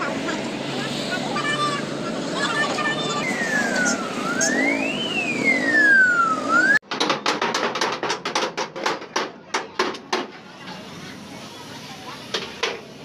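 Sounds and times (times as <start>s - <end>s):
street traffic noise: 0.0s - 13.0s
siren wailing: 3.0s - 6.8s
hammering on sheet metal: 6.8s - 10.4s.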